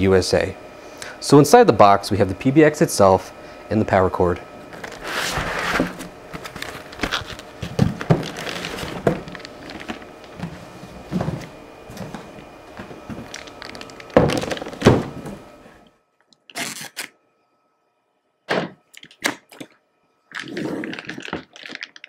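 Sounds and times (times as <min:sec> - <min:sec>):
cardboard rustling: 0:04.7 - 0:15.4
plastic bag crinkling: 0:06.4 - 0:10.4, 0:13.1 - 0:14.9, 0:20.3 - 0:22.0.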